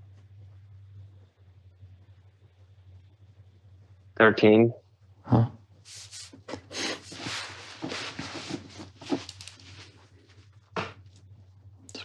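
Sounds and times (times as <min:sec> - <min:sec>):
rustling and rubbing: 0:05.9 - 0:11.0.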